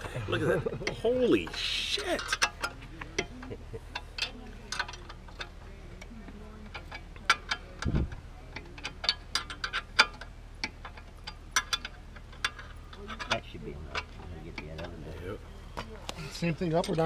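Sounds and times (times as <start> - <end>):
hand tools clinking on metal: 0.6 - 5.6.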